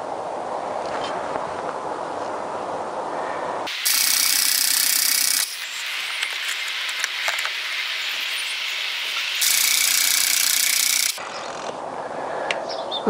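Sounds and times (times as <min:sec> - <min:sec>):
engine cranking without starting: 0:03.7 - 0:07.6, 0:09.3 - 0:11.7.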